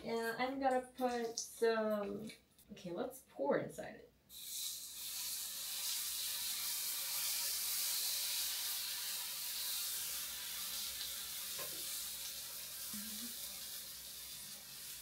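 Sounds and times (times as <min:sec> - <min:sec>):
batter sizzling in hot pan: 0:04.3 - 0:15.0.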